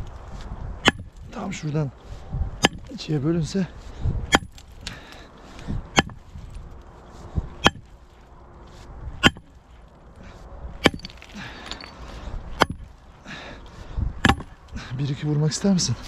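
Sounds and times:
sledgehammer striking rock: 0.8s - 1.1s, 2.6s - 2.9s, 4.3s - 4.6s, 6.0s - 6.2s, 7.6s - 7.9s, 9.2s - 9.5s, 10.8s - 11.9s, 12.6s - 12.8s, 14.2s - 14.6s.

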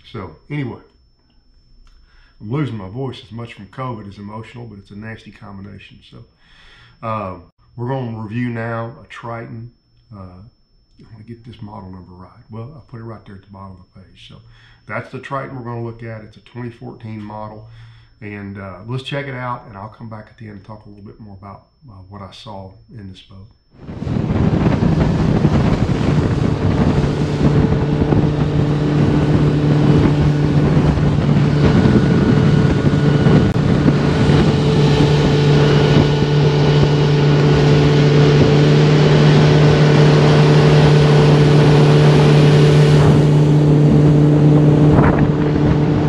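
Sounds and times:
outboard motor running: 23.8s - 46.0s
water rushing along hull: 23.8s - 46.0s
wind buffeting microphone: 23.8s - 46.0s.

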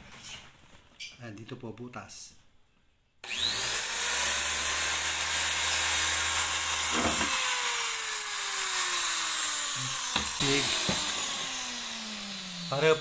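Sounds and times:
electric drill boring into plastic: 3.2s - 13.0s.

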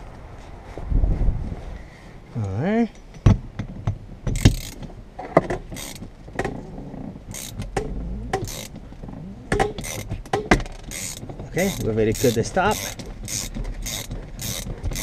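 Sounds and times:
ratchet wrench clicking: 4.4s - 4.8s, 5.8s - 6.0s, 7.3s - 7.7s, 8.4s - 8.7s, 9.7s - 10.1s, 10.9s - 15.0s.

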